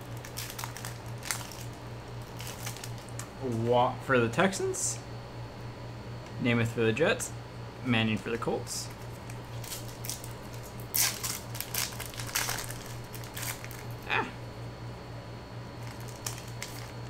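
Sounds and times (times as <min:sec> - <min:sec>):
foil wrapper crinkling and tearing: 0:00.0 - 0:03.3, 0:08.9 - 0:14.0, 0:15.8 - 0:17.0.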